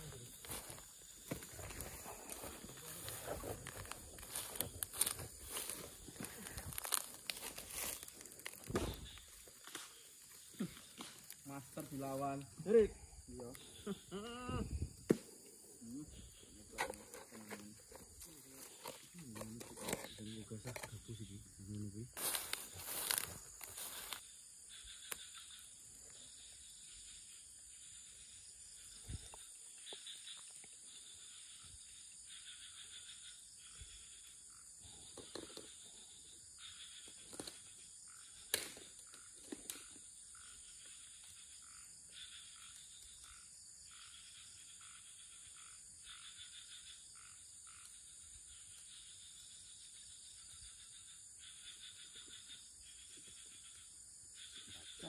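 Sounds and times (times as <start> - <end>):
insects and frogs droning: 0.0 - 55.0.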